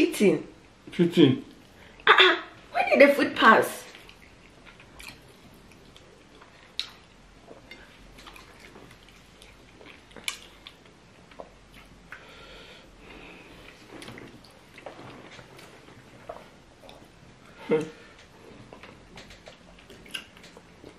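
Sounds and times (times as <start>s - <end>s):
people chewing: 3.9s - 20.9s
mouth clicks and smacks: 17.8s - 20.9s.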